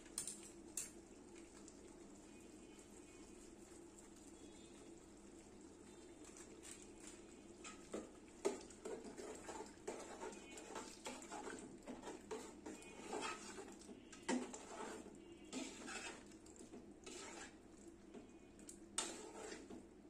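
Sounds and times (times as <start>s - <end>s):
metal spoon scraping a pot: 7.6s - 16.4s, 17.0s - 17.6s, 19.0s - 19.8s.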